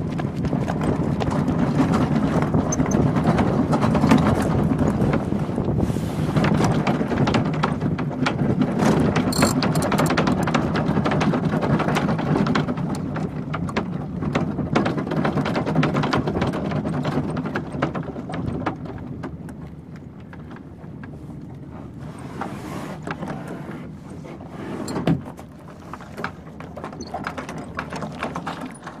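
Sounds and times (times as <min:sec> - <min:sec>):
hard wheels rumbling on concrete: 0:00.0 - 0:19.4
frame rattling with small clicks: 0:09.2 - 0:10.4.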